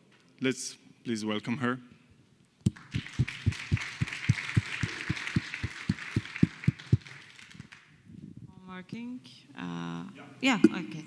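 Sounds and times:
audience applauding: 2.7 - 7.8
close hands clapping: 2.7 - 7.9.

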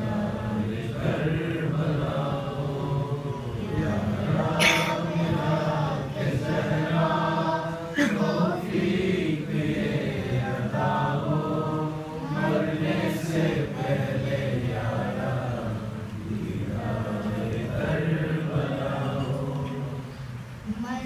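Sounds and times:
boy chanting: 0.0 - 21.0.

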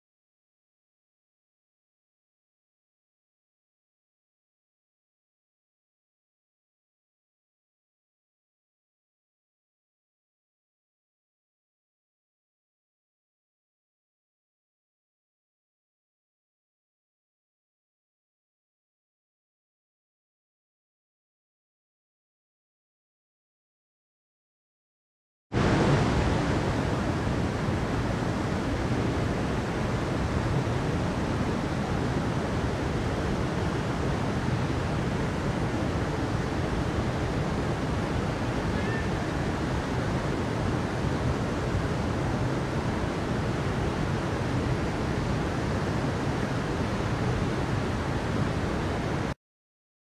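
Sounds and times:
stream running over rocks: 25.6 - 49.2.

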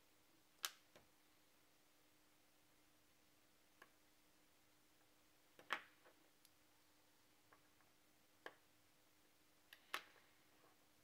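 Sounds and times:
faint steady hum: 0.0 - 11.0
small sharp clicks: 0.6 - 1.1.

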